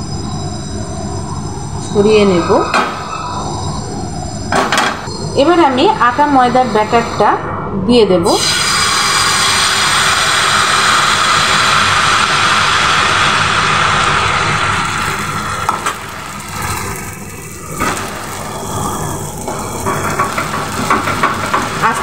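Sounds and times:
batter sizzling in frying pan: 0:08.4 - 0:22.0.

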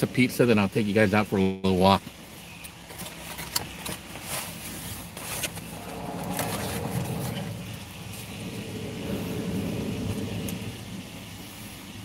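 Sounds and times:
handling clicks and scrapes: 0:02.9 - 0:10.8
low vehicle rumble: 0:04.0 - 0:12.0.

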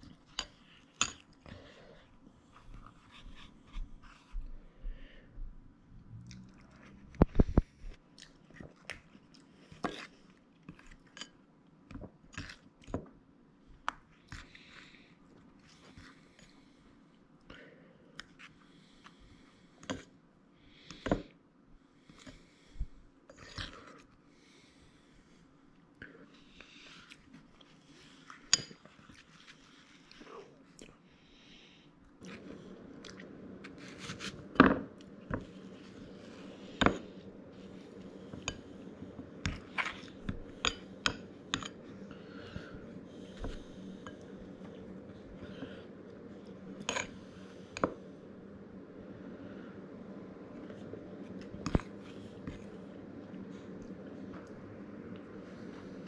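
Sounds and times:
steady low hum: 0:00.0 - 0:56.0
spoon and fork scraping ceramic bowl: 0:46.8 - 0:47.2.

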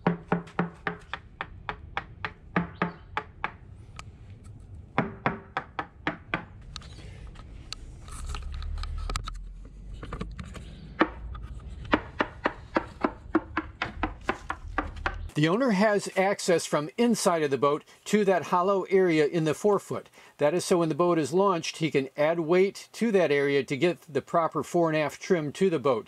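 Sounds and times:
hand tool tapping fiberglass: 0:00.0 - 0:03.6, 0:11.9 - 0:15.0
low rumble: 0:01.0 - 0:15.4.

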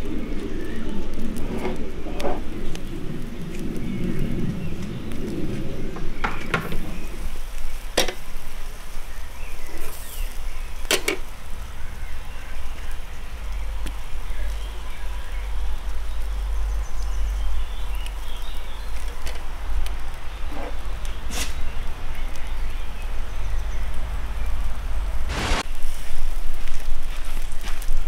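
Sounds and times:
faint sizzling on grill: 0:00.0 - 0:28.0
steady low rumble: 0:22.9 - 0:25.8.

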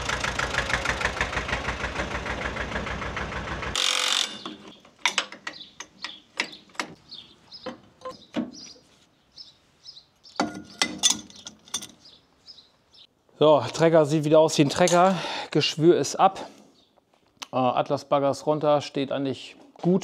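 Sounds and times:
tractor engine running: 0:00.0 - 0:07.1
sharp clicks and knocks: 0:04.2 - 0:07.0, 0:07.6 - 0:08.8, 0:10.4 - 0:12.1
birds chirping faintly: 0:04.4 - 0:13.2, 0:16.4 - 0:17.7.

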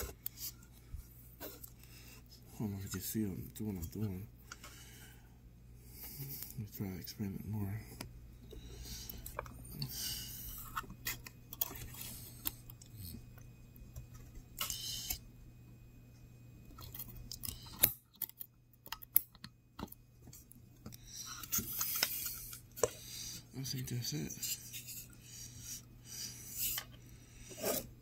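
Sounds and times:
low background hum: 0:00.0 - 0:28.0
heavy breathing: 0:04.4 - 0:06.7, 0:07.8 - 0:10.8.

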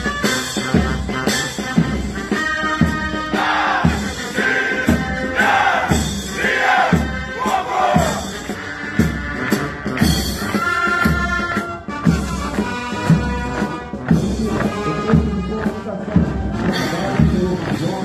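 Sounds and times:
heavy drum beat: 0:00.0 - 0:18.0
military march music: 0:00.0 - 0:18.0
soldiers singing or chanting: 0:03.1 - 0:08.5.

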